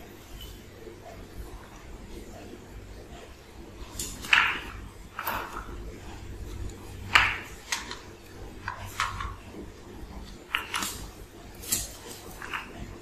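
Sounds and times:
paws and claws clicking on tile: 0:03.2 - 0:13.0.

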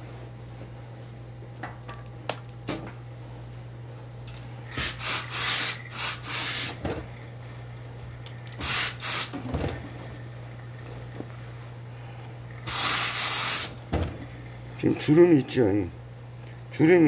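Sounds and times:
steam iron hissing: 0:04.7 - 0:06.8, 0:08.6 - 0:09.5, 0:12.5 - 0:13.8.

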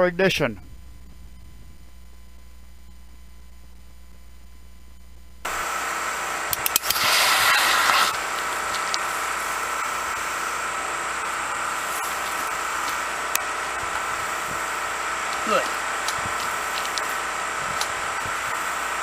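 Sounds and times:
faint steady hum: 0:00.0 - 0:19.0
outdoor hiss: 0:05.4 - 0:19.0
loud rushing hiss of burning charge: 0:05.5 - 0:19.0
sharp clicks: 0:06.5 - 0:09.1.

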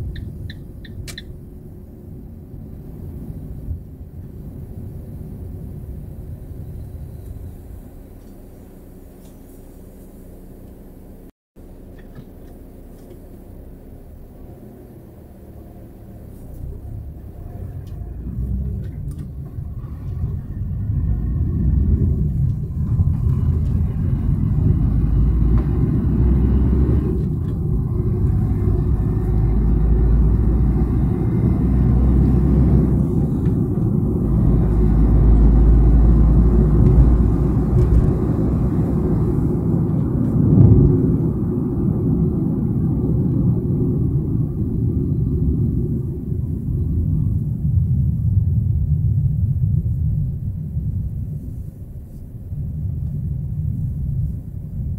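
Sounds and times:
car driving rumble inside cabin: 0:00.0 - 0:54.9
car bump: 0:36.8 - 0:38.6.

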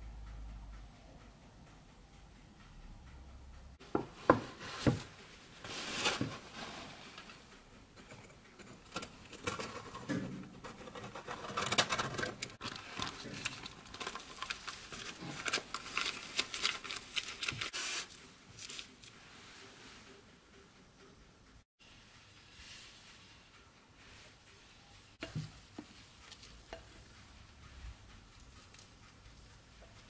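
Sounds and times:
parchment paper crinkling: 0:10.9 - 0:19.2.

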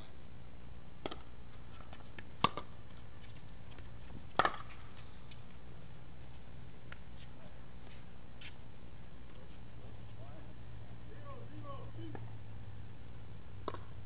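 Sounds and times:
paddles hitting plastic ball: 0:01.0 - 0:02.7, 0:03.7 - 0:04.8, 0:13.6 - 0:13.9.

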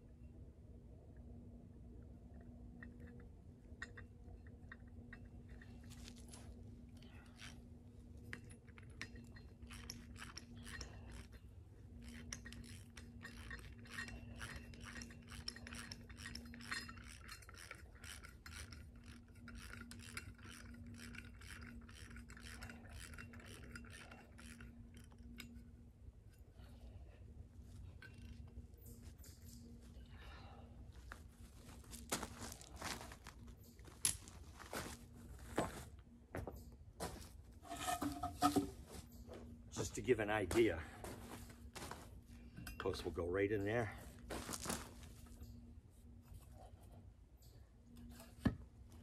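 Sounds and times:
low steady hum: 0:00.0 - 0:49.0
ratchet wrench clicking: 0:08.3 - 0:25.6.

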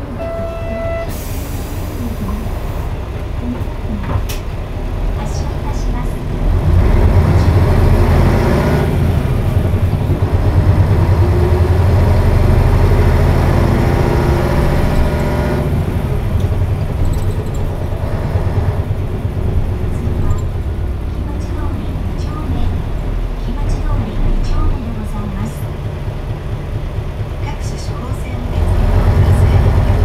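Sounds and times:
bus diesel engine accelerating: 0:00.0 - 0:30.0.

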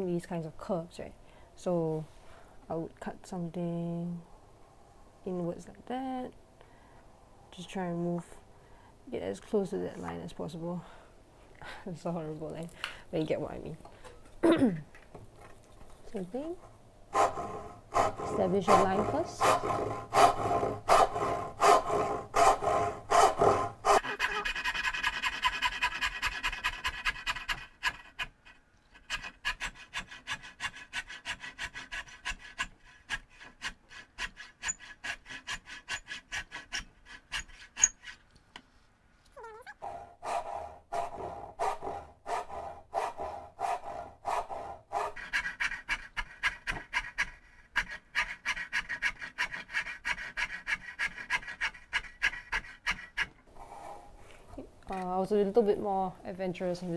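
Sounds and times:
hand saw cutting wood: 0:17.1 - 0:28.3, 0:29.0 - 0:38.3, 0:39.9 - 0:54.1.

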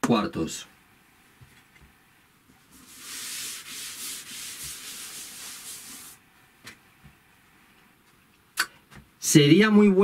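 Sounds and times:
cloth rubbing chalkboard: 0:02.6 - 0:06.2.

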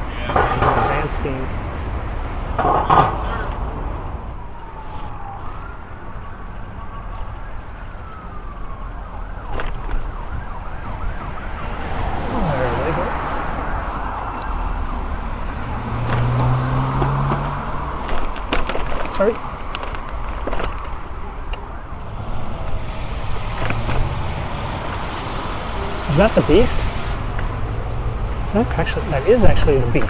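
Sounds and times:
road traffic: 0:00.0 - 0:30.0
siren wailing: 0:02.6 - 0:18.0, 0:19.2 - 0:26.7.

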